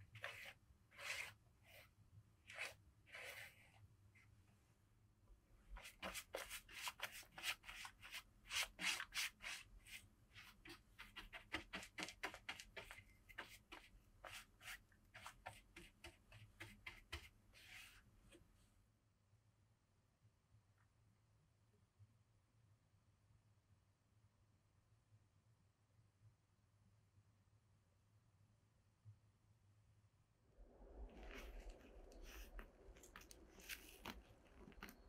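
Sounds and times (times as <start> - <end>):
brushing strokes on a surface: 0.0 - 4.3, 5.7 - 18.7, 30.6 - 35.0.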